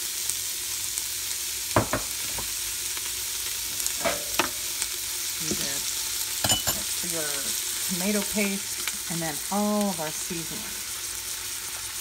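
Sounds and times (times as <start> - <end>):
vegetables sizzling in oil: 0.0 - 12.0
spoon knocking on pot: 1.8 - 2.2, 6.4 - 6.9.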